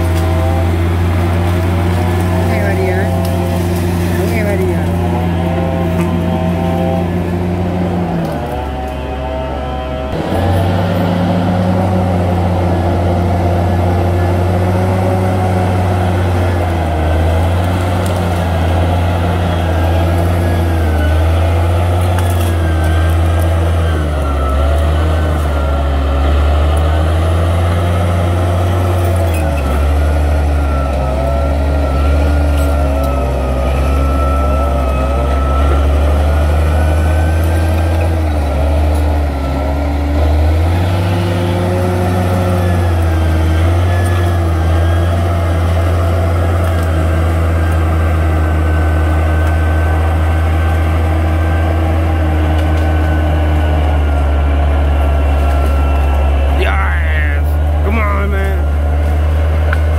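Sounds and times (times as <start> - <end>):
bulldozer diesel engine running: 0.0 - 59.9.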